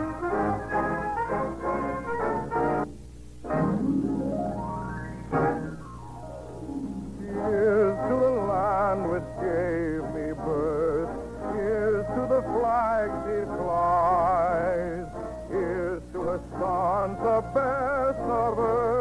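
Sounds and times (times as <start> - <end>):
low recording hum: 0.0 - 19.0
person singing with vibrato: 7.0 - 19.0.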